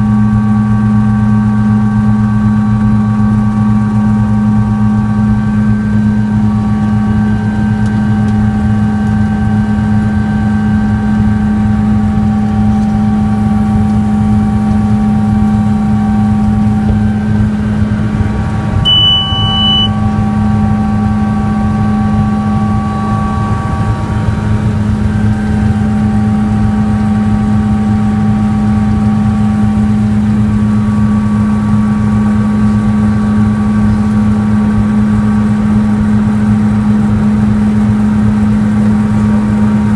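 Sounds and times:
helicopter rotor and engine drone: 0:00.0 - 0:39.9
short high beep: 0:18.8 - 0:20.1
thin whining tones: 0:18.8 - 0:30.1.

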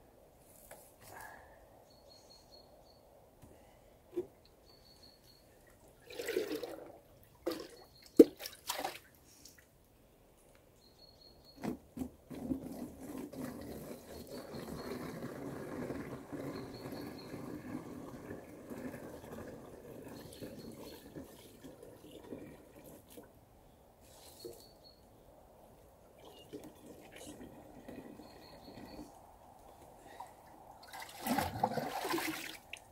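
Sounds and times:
water pouring into plastic bottle: 0:06.1 - 0:07.7.

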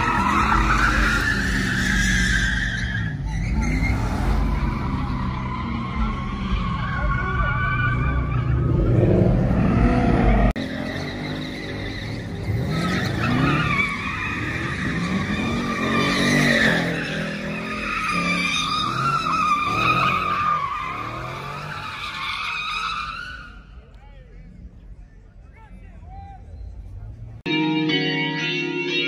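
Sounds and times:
tires squealing: 0:00.0 - 0:24.8
car engines revving: 0:00.0 - 0:27.5.

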